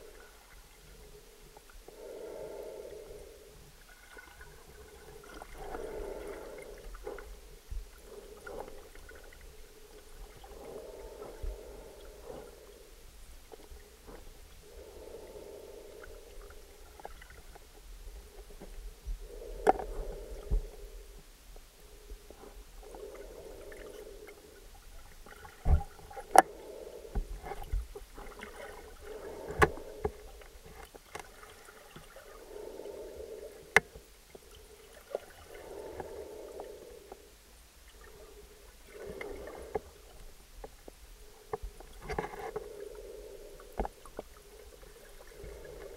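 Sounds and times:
underwater gurgling: 3.8 - 12.8, 22.0 - 40.8.

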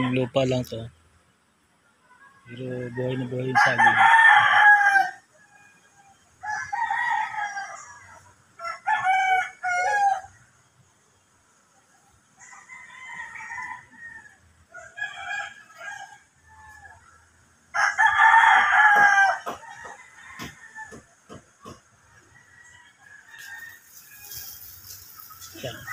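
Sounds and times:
roosters crowing: 0.0 - 0.6, 2.2 - 10.7, 12.2 - 25.9.

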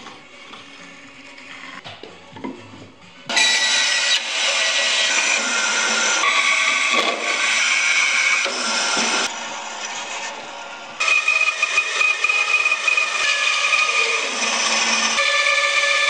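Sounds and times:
band saw running: 3.3 - 16.0.

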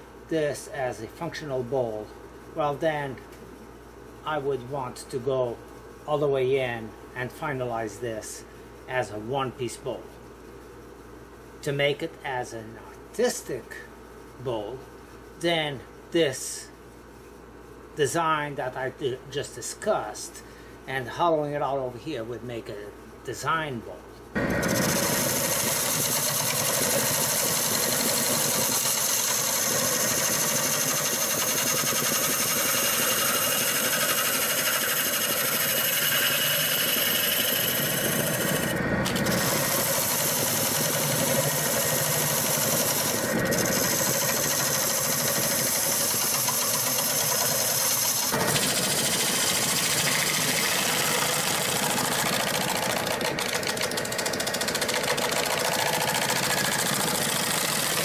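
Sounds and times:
gouge cutting wood: 24.4 - 58.0
lathe motor whine: 24.4 - 58.0.

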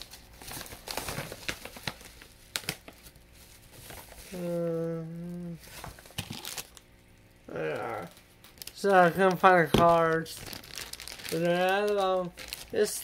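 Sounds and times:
plastic packaging crinkling: 0.0 - 13.0
person humming: 4.3 - 5.6, 7.5 - 8.1.

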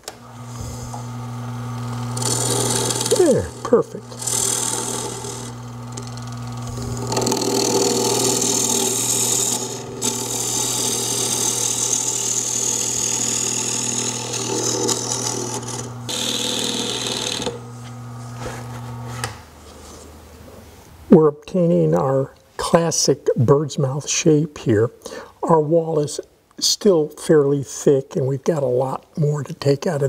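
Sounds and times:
lathe motor hum: 0.0 - 19.8.

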